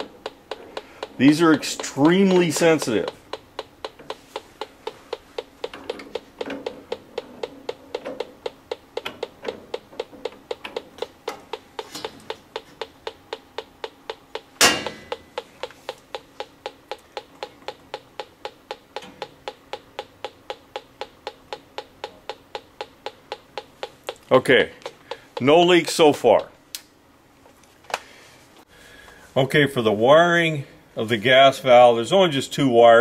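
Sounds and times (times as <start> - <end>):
gas detector ticking: 0.0 - 26.8
loud knock: 14.6 - 15.5.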